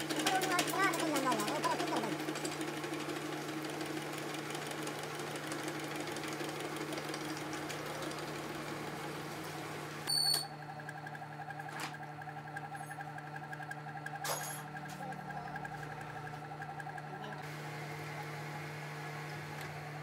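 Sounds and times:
lathe humming: 0:00.0 - 0:20.0
fast ticking of cutting: 0:10.6 - 0:17.5.

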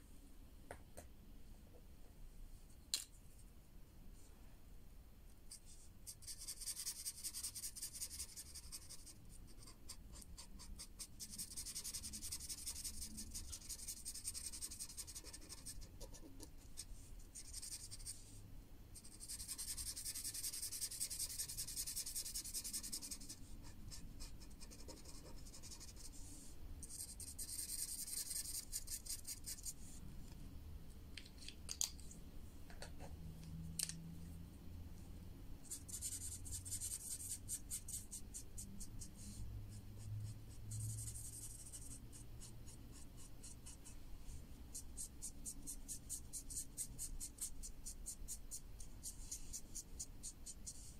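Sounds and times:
marker scribbling on paper: 0:05.6 - 0:18.3, 0:19.0 - 0:30.0, 0:40.0 - 0:44.0, 0:44.7 - 0:50.9.

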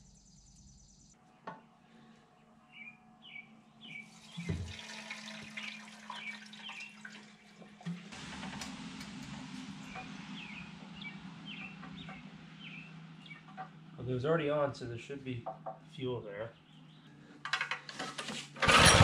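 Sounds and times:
small bird chirping: 0:00.0 - 0:01.2, 0:02.7 - 0:04.5, 0:09.9 - 0:13.7
steady low hum: 0:08.0 - 0:17.5.

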